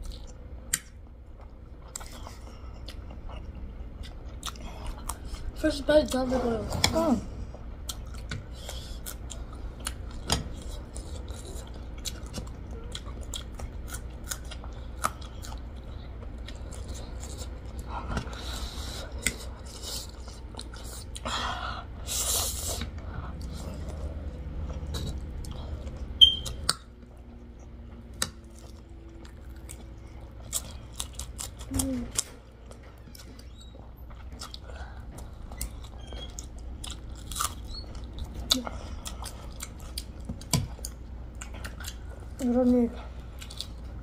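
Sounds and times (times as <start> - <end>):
wet chewing and slurping: 22.0 - 44.0.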